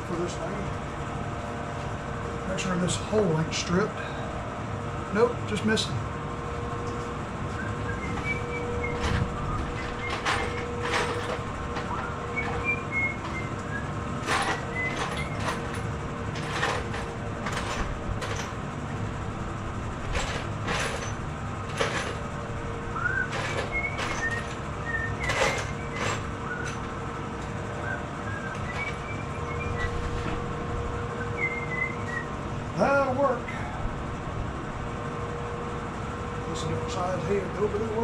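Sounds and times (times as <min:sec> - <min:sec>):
steady background hum: 0:00.0 - 0:38.0
small hardware clinking: 0:23.3 - 0:26.9.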